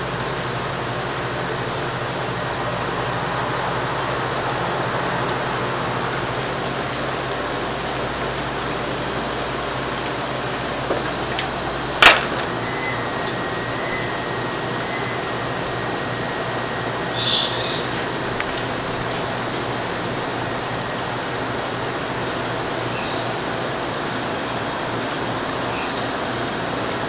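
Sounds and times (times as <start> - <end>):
steady rushing noise: 0.0 - 17.2
loud metal clank: 12.0 - 12.5
light metal clinks: 18.4 - 19.2.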